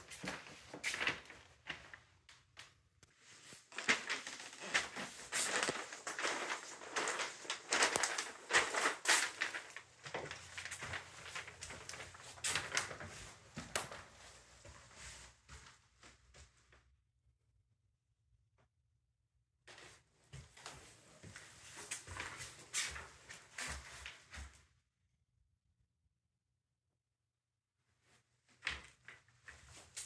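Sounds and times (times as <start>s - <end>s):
footsteps on paper and plastic sheeting: 0.0s - 2.0s, 3.2s - 16.6s, 19.7s - 24.6s.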